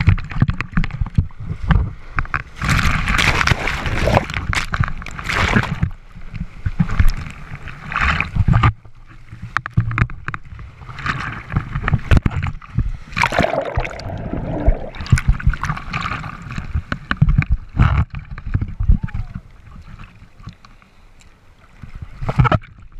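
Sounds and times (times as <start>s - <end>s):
low rumble of water: 0.0s - 22.9s
seawater splashing on camera: 13.1s - 16.8s.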